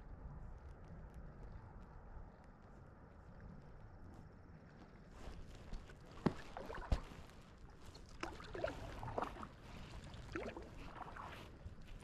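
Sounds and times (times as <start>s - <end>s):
paddle strokes in water: 6.1s - 12.0s
small splashes and gurgles: 6.2s - 11.7s.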